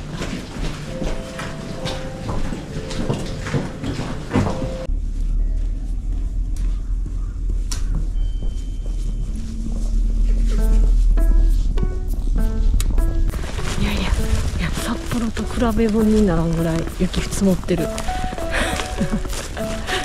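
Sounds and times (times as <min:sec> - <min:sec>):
footsteps in snow: 0:00.0 - 0:20.0
footsteps on platform: 0:00.0 - 0:20.0
wind rumbling on microphone: 0:04.9 - 0:18.3.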